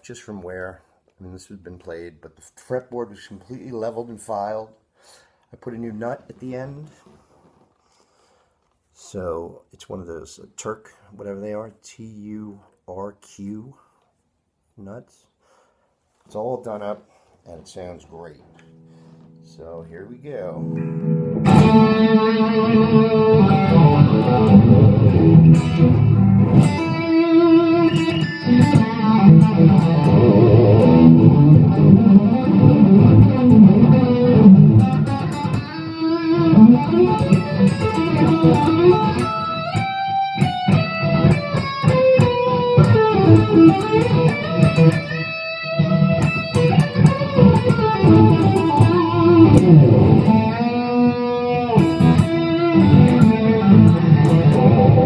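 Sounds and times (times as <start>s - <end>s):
electric guitar playing: 18.6s - 55.0s.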